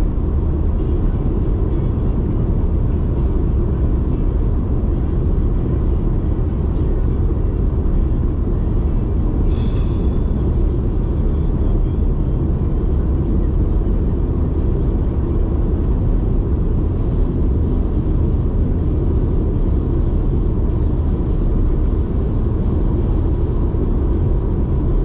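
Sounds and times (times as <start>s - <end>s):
car road and engine rumble: 0.0s - 25.0s.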